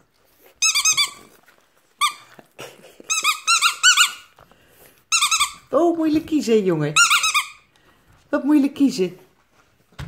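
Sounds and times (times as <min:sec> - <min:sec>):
squeaky dog toy squeaking: 0:00.6 - 0:01.4, 0:02.0 - 0:02.4, 0:03.1 - 0:04.4, 0:05.1 - 0:05.8, 0:06.8 - 0:07.7.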